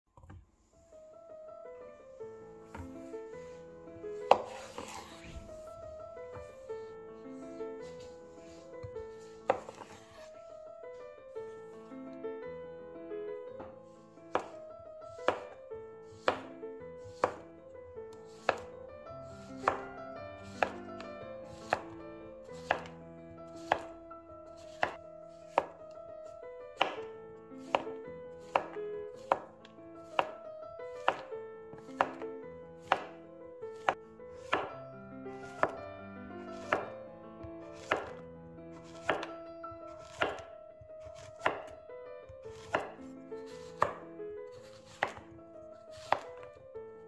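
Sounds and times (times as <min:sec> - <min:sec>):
soft instrumental music: 0:00.2 - 0:47.0
knife chopping on wooden board: 0:04.2 - 0:05.5, 0:08.8 - 0:10.3, 0:14.3 - 0:17.4, 0:18.3 - 0:18.7, 0:19.3 - 0:20.9, 0:21.5 - 0:22.0, 0:22.6 - 0:22.9, 0:23.5 - 0:23.9, 0:24.6 - 0:25.9, 0:26.8 - 0:30.4, 0:31.0 - 0:33.2, 0:33.8 - 0:34.7, 0:35.5 - 0:35.8, 0:36.5 - 0:36.9, 0:37.8 - 0:38.2, 0:38.8 - 0:41.8, 0:42.4 - 0:46.5.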